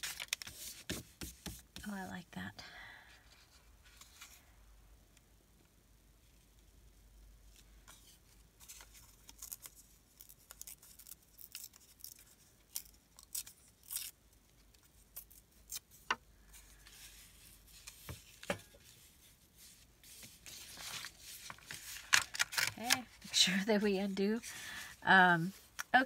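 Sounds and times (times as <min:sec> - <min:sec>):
paper rustling and crinkling: 0:00.0 - 0:01.6, 0:07.9 - 0:14.0, 0:14.8 - 0:24.9.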